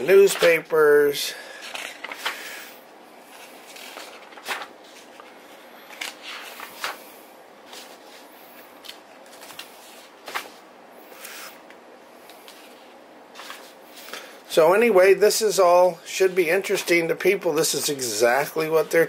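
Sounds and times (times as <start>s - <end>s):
paper pages rustling: 0.1s - 0.8s, 1.5s - 2.6s, 3.2s - 10.6s, 12.3s - 14.3s.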